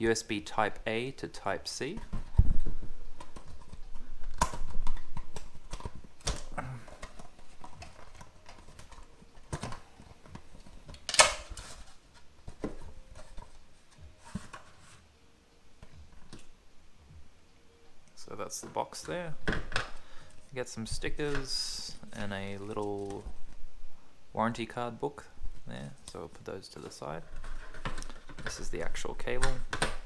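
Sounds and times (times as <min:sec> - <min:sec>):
cardboard and plastic rustling: 0:01.4 - 0:15.1, 0:18.2 - 0:23.6, 0:25.5 - 0:30.0.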